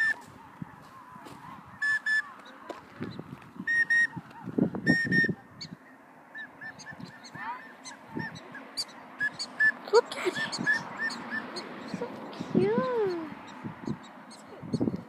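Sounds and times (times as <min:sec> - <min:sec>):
prairie dogs barking yips: 0:00.0 - 0:15.0.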